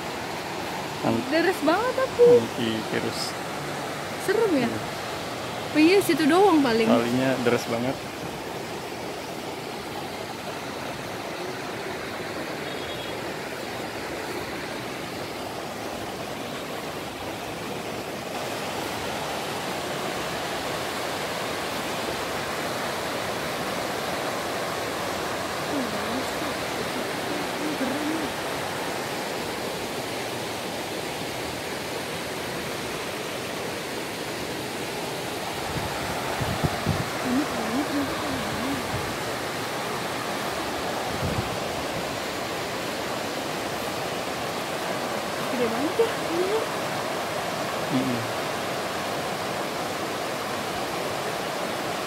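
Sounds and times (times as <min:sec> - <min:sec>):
river rushing over boulders: 0:00.0 - 0:52.0.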